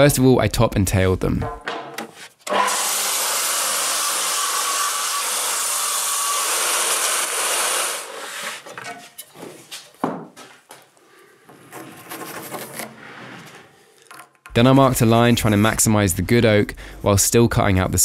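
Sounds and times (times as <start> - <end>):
knock: 1.4 - 2.1
circular saw cutting wood: 2.5 - 8.8.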